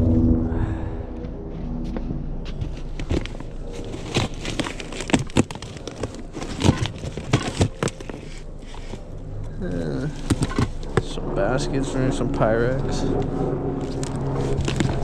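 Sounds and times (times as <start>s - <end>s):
low steady rumble: 0.0s - 15.0s
household items knocking and rustling: 3.0s - 9.0s.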